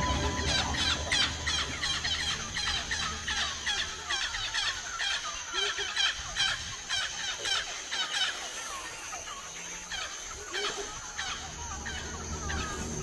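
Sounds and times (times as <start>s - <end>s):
steady high whine: 0.0s - 5.4s
high chirping calls: 0.0s - 13.0s.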